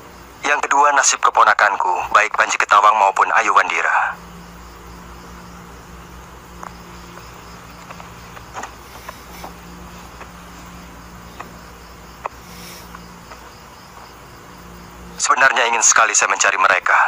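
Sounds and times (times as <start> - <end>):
crickets chirping: 0.0 - 17.0
low steady hum: 0.0 - 17.0
faint clicks: 6.6 - 10.4, 11.3 - 11.6, 12.2 - 14.0.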